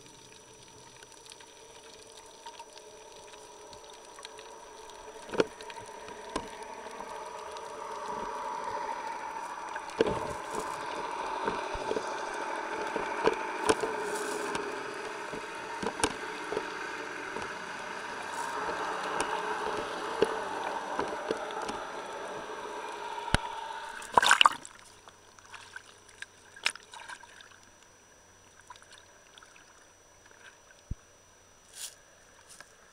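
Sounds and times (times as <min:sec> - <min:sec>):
muffled underwater rush: 0:00.0 - 0:24.7
water splashing: 0:00.0 - 0:27.7
underwater clicks and knocks: 0:04.2 - 0:08.4, 0:09.8 - 0:17.6, 0:18.6 - 0:21.9.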